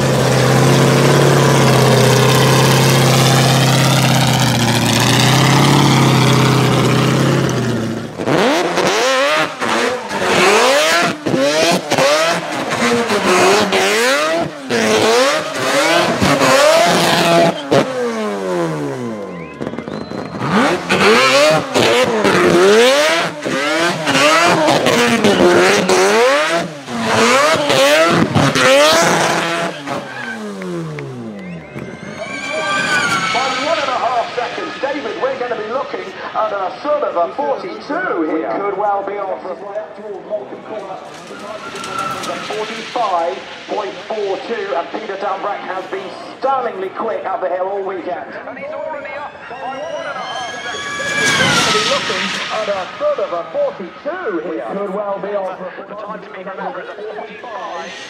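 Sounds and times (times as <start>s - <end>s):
race car engine running steadily: 0.0s - 31.9s
car engine revving with tyres spinning: 0.0s - 37.6s, 50.2s - 55.1s.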